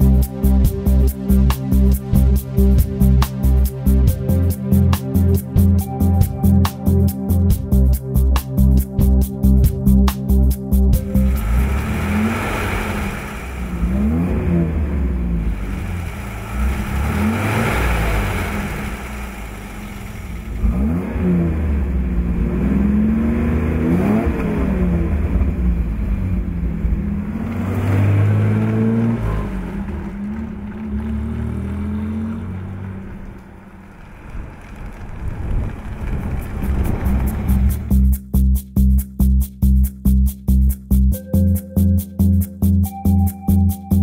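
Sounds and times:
car engine revving: 10.3s - 38.1s.

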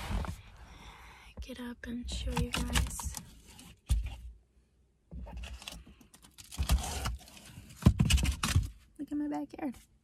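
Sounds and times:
rustling and bumps in a car: 0.0s - 0.6s, 6.4s - 8.9s.

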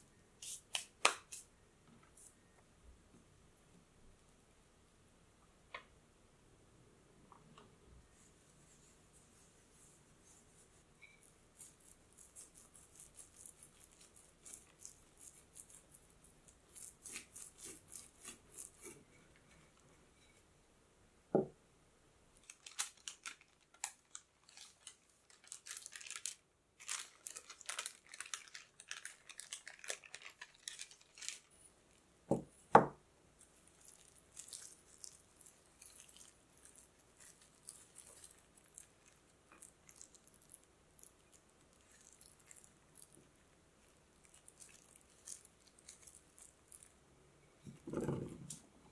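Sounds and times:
hands brushing flour on dough: 8.1s - 19.7s.

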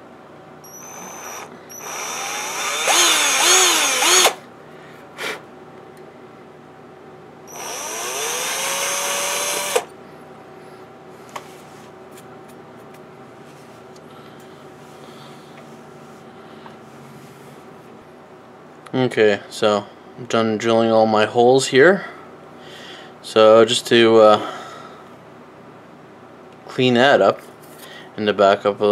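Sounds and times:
power drill whining: 0.6s - 4.4s, 7.5s - 9.9s.

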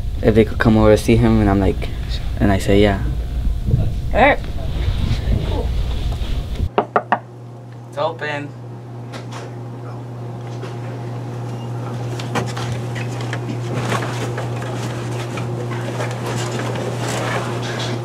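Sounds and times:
steady low hum: 0.0s - 18.0s
shuffling footsteps: 3.2s - 6.7s, 10.4s - 18.0s.

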